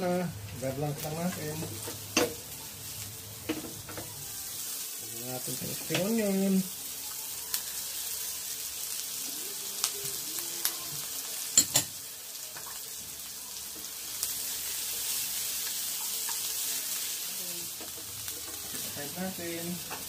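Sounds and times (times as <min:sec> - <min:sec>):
vegetables sizzling in a frying pan: 0:00.0 - 0:20.0
utensils clicking against pan: 0:17.7 - 0:19.0.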